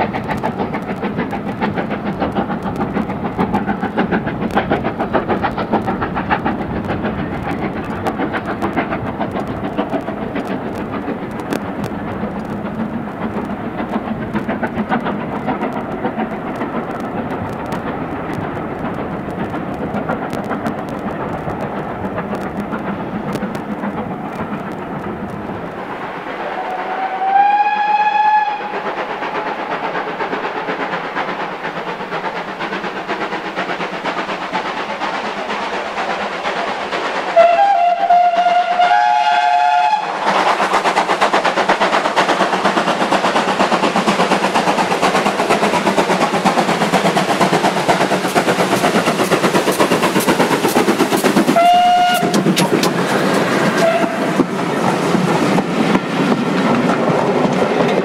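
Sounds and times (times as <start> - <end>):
steam locomotive exhaust beat: 0.0 - 58.0
steam whistle: 26.5 - 28.8, 37.4 - 40.1, 51.6 - 52.4, 53.8 - 54.3.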